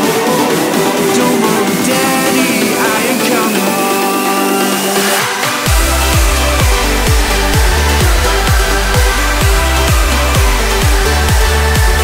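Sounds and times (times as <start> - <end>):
electronic dance music: 0.0 - 12.0
steady kick drum: 5.6 - 12.0.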